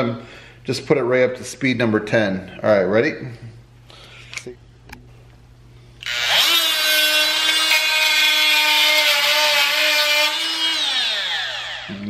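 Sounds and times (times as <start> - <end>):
blade cutting steel nail: 6.0 - 11.8
oscillating tool whine: 6.0 - 12.0.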